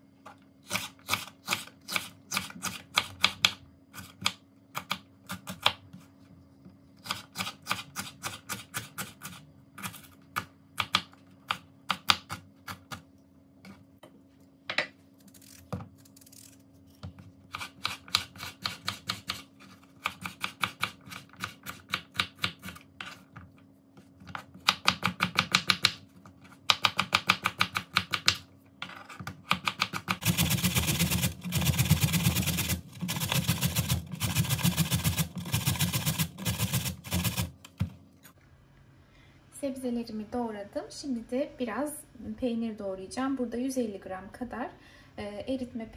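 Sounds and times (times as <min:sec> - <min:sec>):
carrot grated on box grater: 0:30.2 - 0:37.6.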